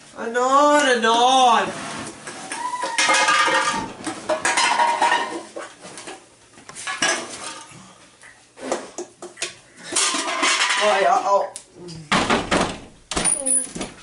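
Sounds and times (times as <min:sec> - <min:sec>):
cans and bottles clattering: 0:02.2 - 0:07.8, 0:08.7 - 0:11.3.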